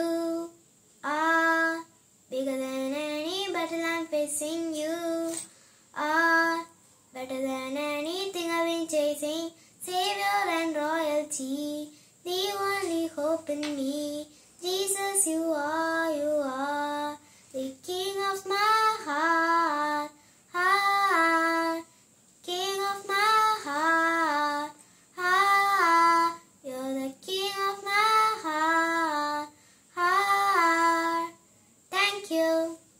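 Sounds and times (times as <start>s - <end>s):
girl singing unaccompanied: 0.0s - 32.9s
girl breathing: 5.5s - 6.0s, 9.5s - 9.8s, 11.9s - 12.2s, 14.3s - 14.6s, 17.2s - 17.6s, 20.1s - 20.5s, 21.9s - 22.2s, 24.8s - 25.2s, 29.5s - 29.9s.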